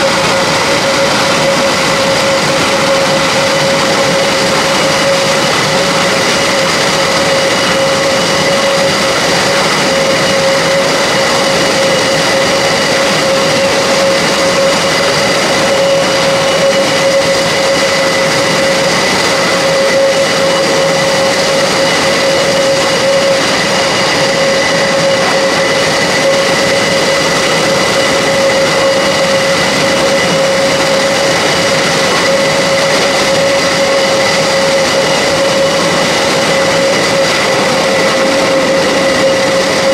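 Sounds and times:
turboprop engines idling: 0.0 - 39.9.

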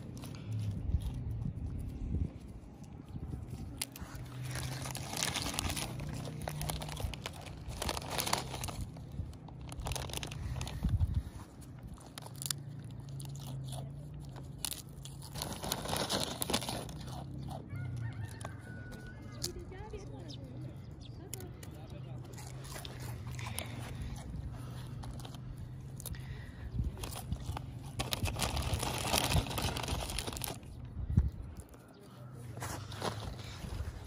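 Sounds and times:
goat crunching chips: 0.0 - 34.0
foil packet crinkling: 3.4 - 19.9, 22.3 - 30.8.

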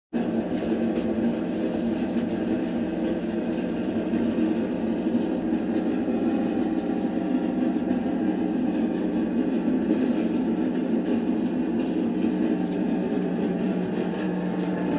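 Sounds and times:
water boiling in saucepan: 0.1 - 14.9.

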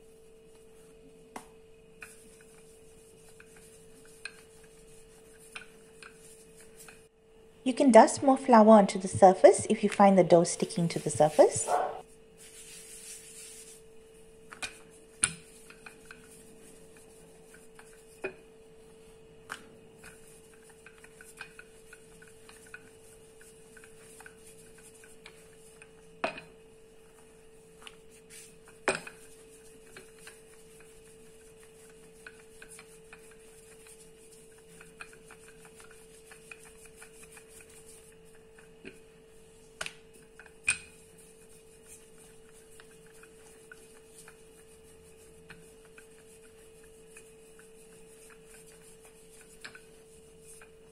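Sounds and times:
rolling pin working dough: 0.0 - 7.1, 14.5 - 50.9
steady hum: 0.0 - 12.0.

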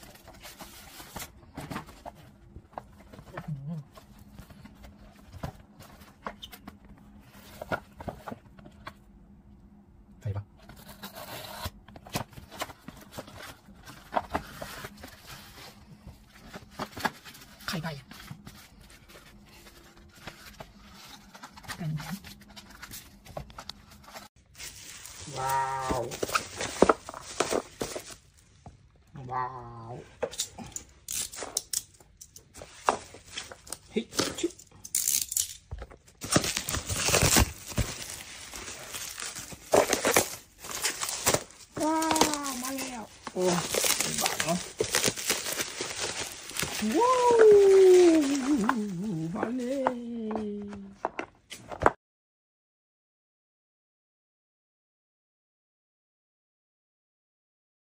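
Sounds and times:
bubble wrap crinkling: 24.4 - 28.5, 36.2 - 50.4
cardboard box being handled: 36.2 - 49.6.

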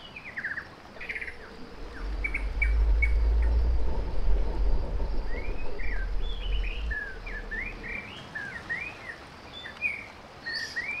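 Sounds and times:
deep low rumble: 1.0 - 8.3.

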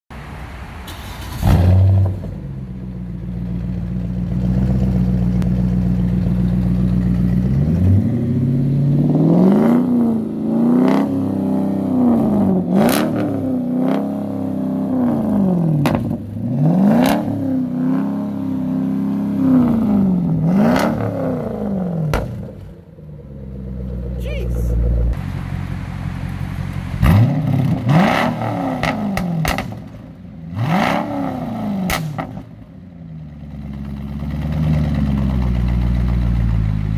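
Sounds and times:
car engine idling and revving: 0.1 - 36.9
exhaust pops: 22.1 - 22.7, 28.8 - 30.0.

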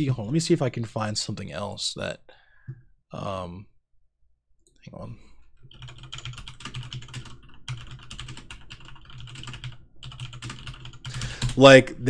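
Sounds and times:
keyboard typing: 5.4 - 11.7.

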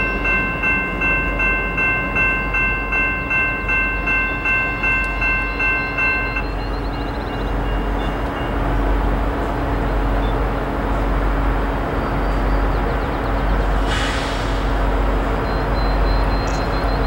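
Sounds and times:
diesel locomotive engine drone: 0.0 - 17.0
brief hiss: 13.8 - 14.7.

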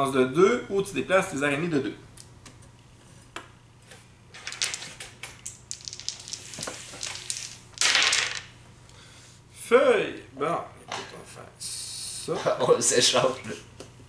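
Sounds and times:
game pieces and dice rattling: 4.4 - 8.5.

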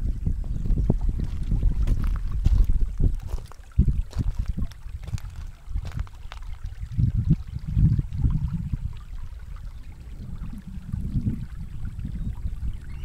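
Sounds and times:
wind buffeting microphone: 0.0 - 13.0
water lapping against rocks: 1.0 - 12.6.

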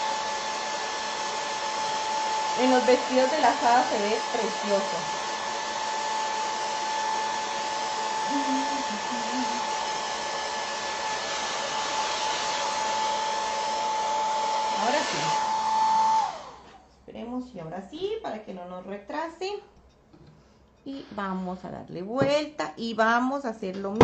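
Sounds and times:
hair dryer blowing: 0.0 - 16.8.

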